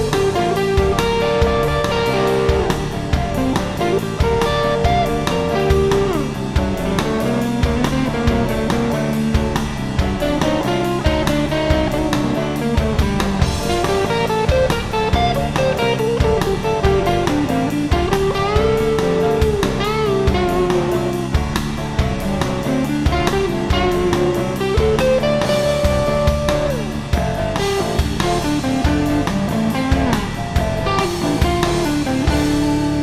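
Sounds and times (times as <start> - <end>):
rock guitar lead: 0.0 - 33.0
steady drum beat: 0.0 - 33.0.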